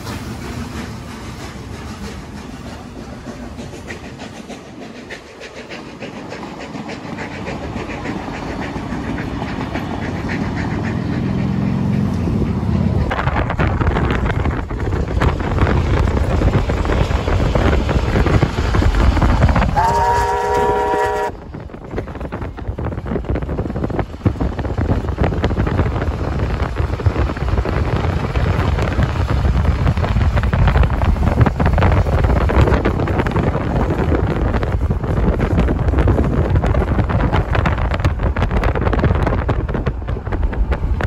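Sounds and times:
train rumble: 0.0s - 41.0s
wind noise on microphone: 7.0s - 41.0s
steam locomotive chime whistle: 19.8s - 21.4s.

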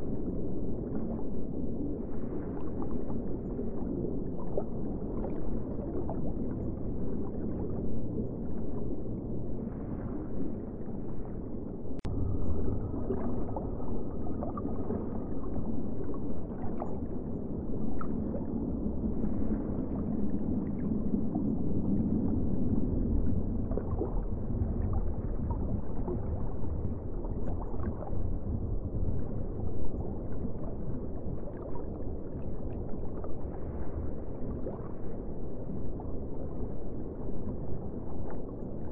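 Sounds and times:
aquarium water gurgling: 0.0s - 38.9s.

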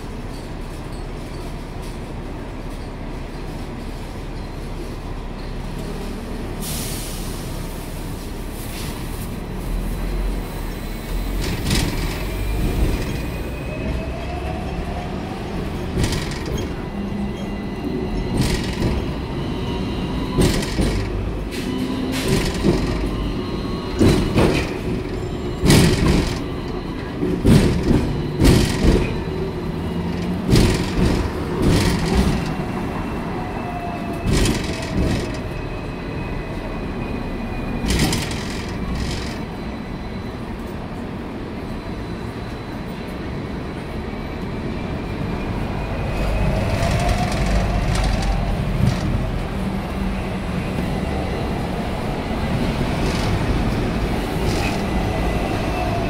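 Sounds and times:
tram passing close: 0.0s - 56.0s
tram rumbling: 0.0s - 56.0s
tram knocks and rattles: 10.0s - 41.2s, 43.8s - 56.0s.

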